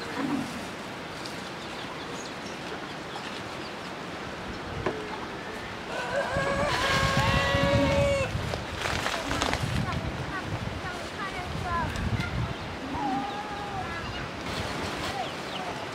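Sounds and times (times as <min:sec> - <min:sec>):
faint outdoor background: 0:00.0 - 0:15.9
chicken calling: 0:05.8 - 0:08.4.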